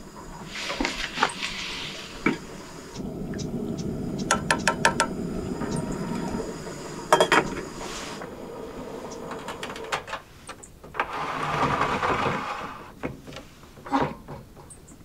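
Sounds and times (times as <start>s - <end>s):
soft hissing: 0.0s - 10.5s.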